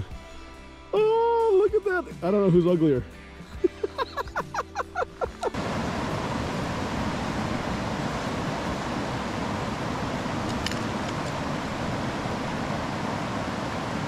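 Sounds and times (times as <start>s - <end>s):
river water flowing over rocks: 4.5s - 14.0s.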